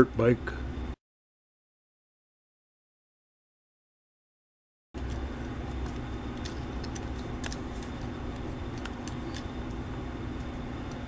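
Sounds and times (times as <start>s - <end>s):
steady low hum: 0.0s - 1.0s, 5.0s - 11.0s.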